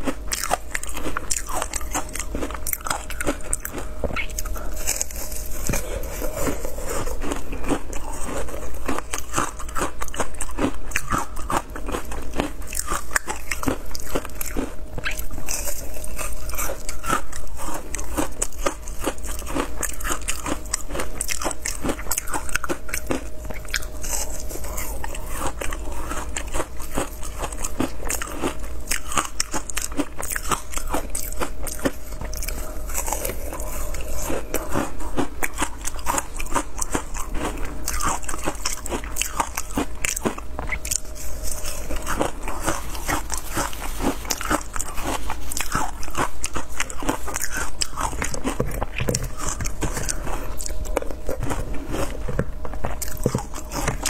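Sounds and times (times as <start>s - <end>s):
chewing: 0.0s - 54.0s
ice crunching between teeth: 0.0s - 54.0s.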